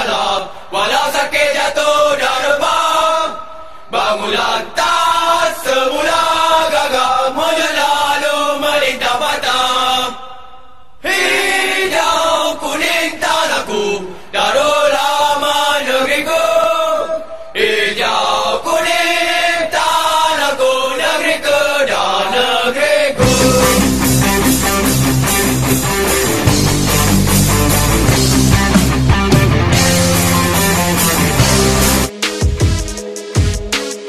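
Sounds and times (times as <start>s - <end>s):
chant-like singing: 0.0s - 24.7s
rock music with heavy bass: 23.2s - 33.9s.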